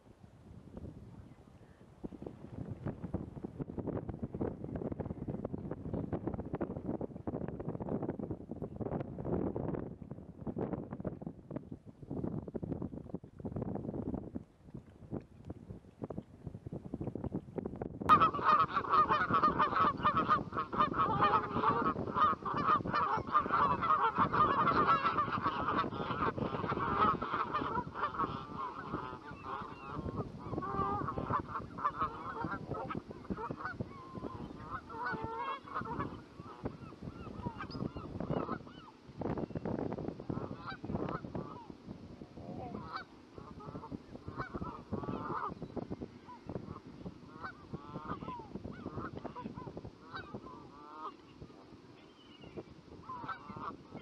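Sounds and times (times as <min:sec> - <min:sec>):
geese honking: 0:18.1 - 0:39.0, 0:40.3 - 0:41.7, 0:42.7 - 0:45.6, 0:46.2 - 0:51.4, 0:52.0 - 0:54.0.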